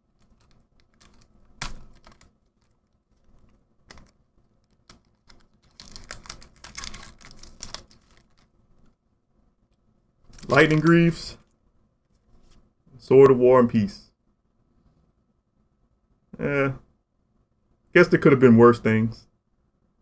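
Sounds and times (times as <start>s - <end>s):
foil wrapper crinkling: 0.2s - 8.5s, 10.3s - 10.9s.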